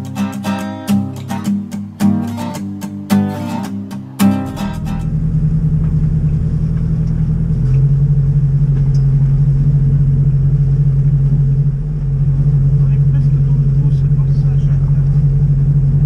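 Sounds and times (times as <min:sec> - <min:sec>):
acoustic guitar music: 0:00.0 - 0:10.2
boat engine running: 0:04.2 - 0:16.0.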